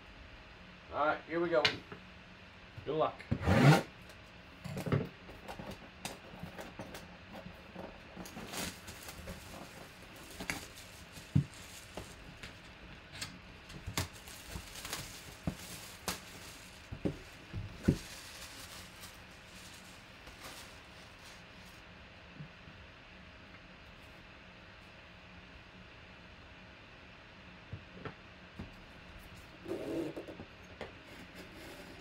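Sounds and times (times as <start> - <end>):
cardboard box handled and opened: 5.4 - 12.6.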